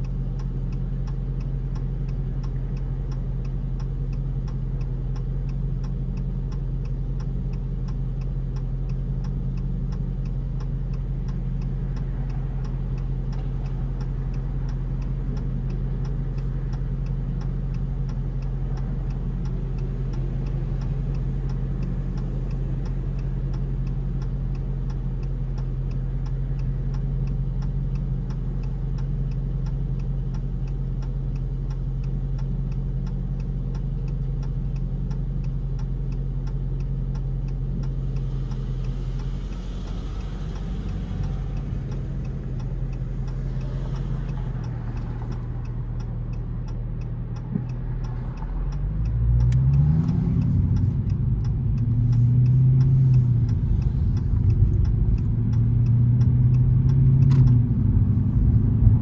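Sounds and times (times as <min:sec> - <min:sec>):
car interior hum: 0:00.0 - 0:59.0
regular ticking: 0:00.0 - 0:59.0.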